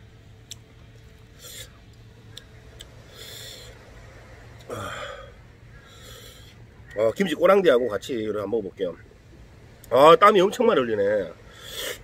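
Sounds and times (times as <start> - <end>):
sharp breaths through nose: 11.5 - 12.0.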